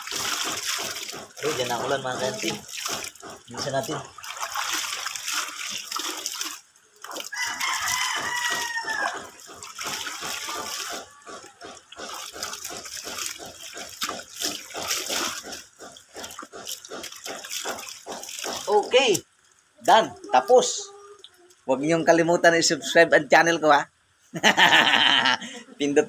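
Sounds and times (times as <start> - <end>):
clothes splashing in water: 0.0 - 19.2
rooster crowing: 7.3 - 9.6.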